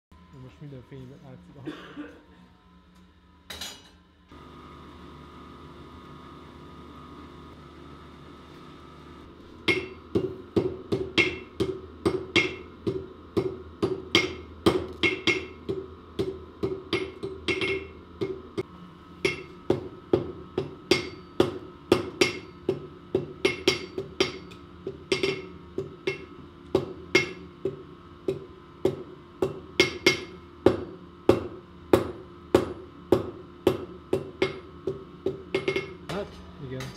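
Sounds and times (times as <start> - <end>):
steady hum: 0.1 - 36.9
hammer ringing on anvil: 9.7 - 18.4, 19.2 - 27.4, 28.3 - 31.5, 35.6 - 36.9.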